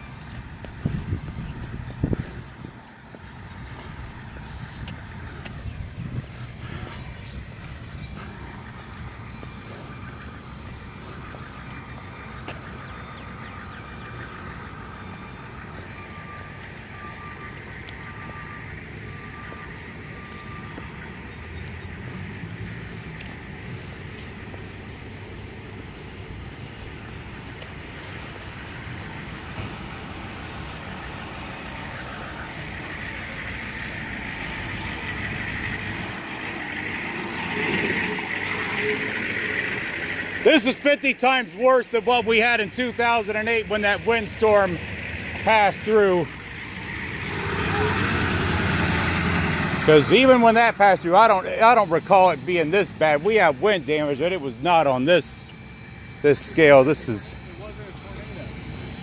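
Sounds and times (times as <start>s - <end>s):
passing traffic: 0.0s - 59.0s
truck engines rumbling: 0.0s - 59.0s
faint steady whine: 53.7s - 59.0s.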